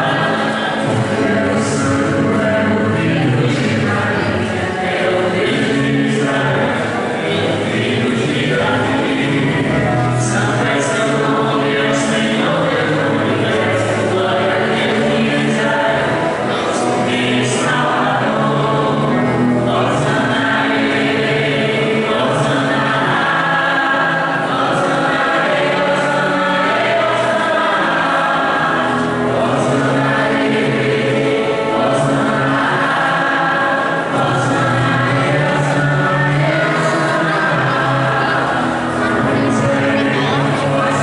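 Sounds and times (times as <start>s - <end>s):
choir and congregation singing hymn: 0.0s - 41.0s.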